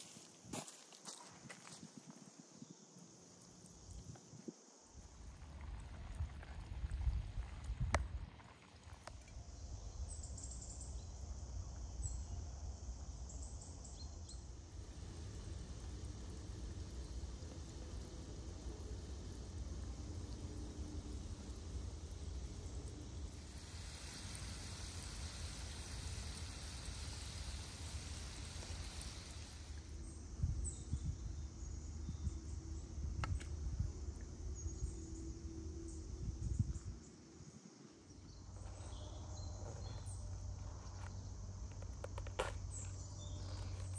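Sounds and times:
faint hiss: 0.0s - 43.9s
insects chirping: 0.0s - 43.9s
hot oil sizzling: 14.4s - 30.8s.

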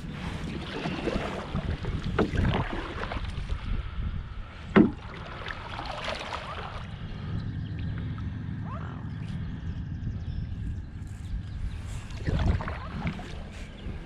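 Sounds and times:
wind rumble on microphone: 0.0s - 14.0s
paddle strokes splashing: 0.1s - 3.6s, 4.7s - 7.0s.

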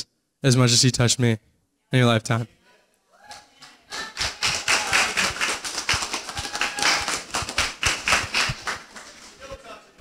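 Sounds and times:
audience applauding: 3.3s - 9.7s.

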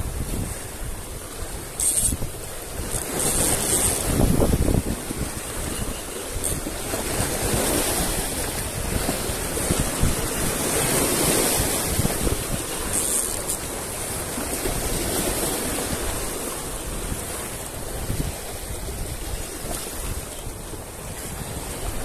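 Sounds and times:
sea waves breaking against rocks: 0.0s - 22.0s.

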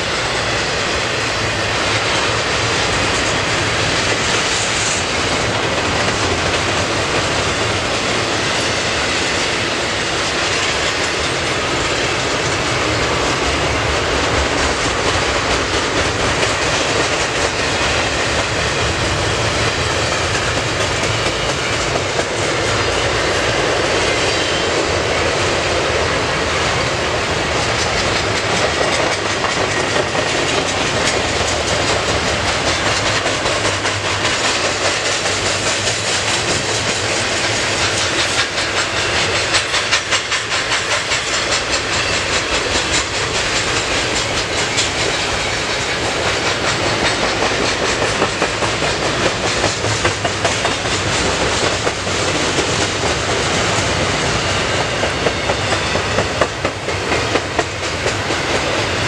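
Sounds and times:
steel wheels on rail: 0.0s - 59.0s.

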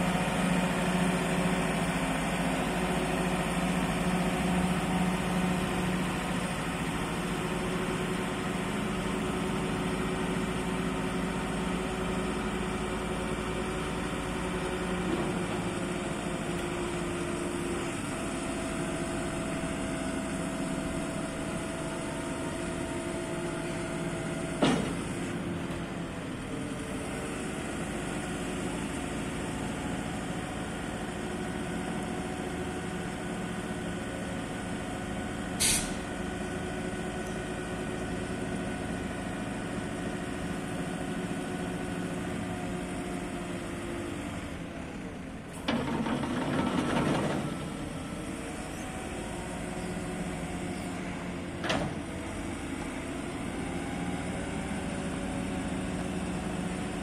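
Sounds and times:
diesel engine running: 0.0s - 57.0s
sharp clunk: 24.6s - 25.2s, 35.6s - 36.0s
hydraulic whine: 35.5s - 36.1s.

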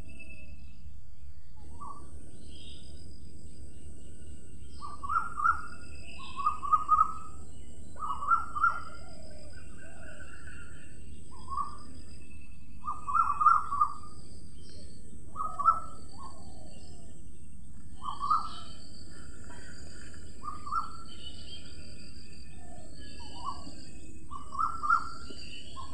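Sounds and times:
faint high bird chirps: 0.0s - 25.9s
short bird calls: 18.0s - 25.9s.

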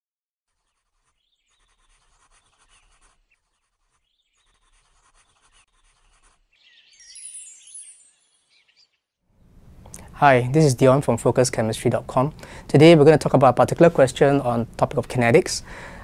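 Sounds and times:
pencil scratching on paper: 0.5s - 6.9s
bright chirping: 6.5s - 9.1s.

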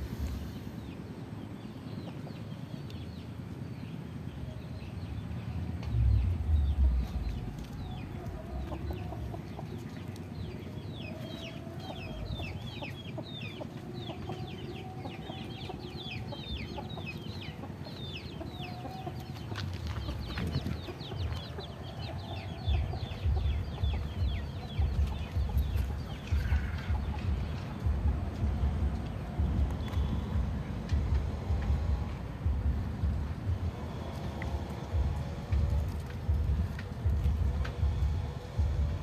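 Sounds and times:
chicks peeping: 4.8s - 39.0s
low thumps and rumbles: 5.1s - 9.8s, 19.6s - 21.6s, 22.6s - 39.0s
hens clucking: 7.0s - 30.0s.

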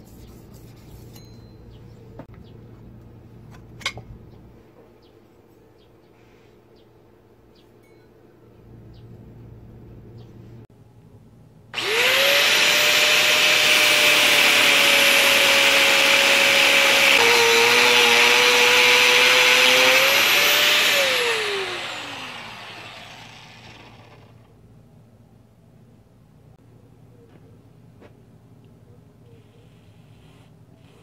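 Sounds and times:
angle grinder cutting steel: 11.8s - 24.4s.

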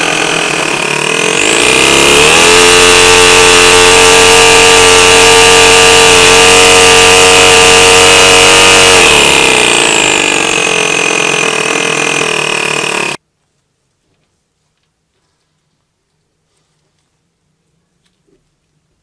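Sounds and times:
model engine running: 0.0s - 13.2s
supercharger high whine: 0.0s - 13.2s.

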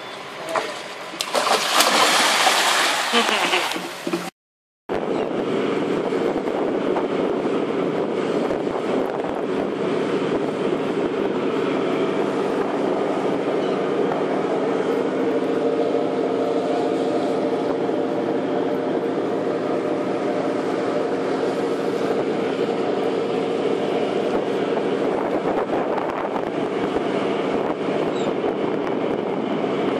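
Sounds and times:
boat engine droning: 0.0s - 4.3s, 4.9s - 29.9s
wind: 0.0s - 4.3s, 4.9s - 29.9s.

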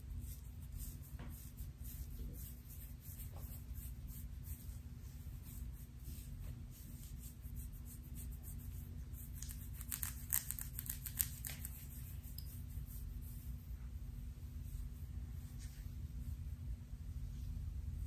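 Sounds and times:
low steady hum: 0.0s - 18.0s
fingernails scratching hair: 0.2s - 13.5s.

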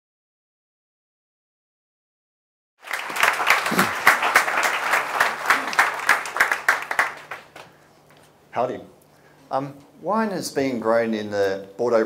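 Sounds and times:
audience applauding: 2.8s - 7.8s.

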